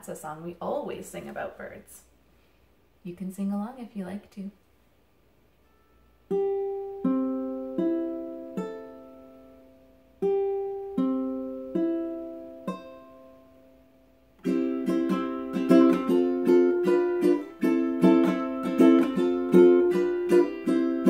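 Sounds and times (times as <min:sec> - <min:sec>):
ukulele strumming: 0:05.6 - 0:21.0.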